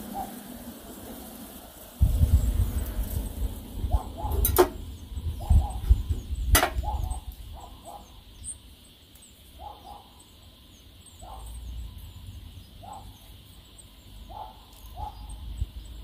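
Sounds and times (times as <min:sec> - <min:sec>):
distant dog barking: 0:00.0 - 0:00.4, 0:03.8 - 0:04.7, 0:05.4 - 0:06.0, 0:06.6 - 0:08.2, 0:09.6 - 0:10.3, 0:11.2 - 0:11.7, 0:12.8 - 0:13.2, 0:14.2 - 0:15.4
wind rumble on microphone: 0:00.0 - 0:08.5, 0:14.9 - 0:16.0.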